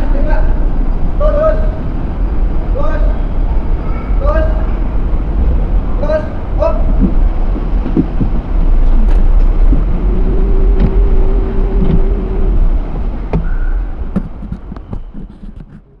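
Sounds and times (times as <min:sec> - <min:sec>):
car cabin engine rumble: 0:04.6 - 0:15.9
steady hum: 0:04.7 - 0:14.7.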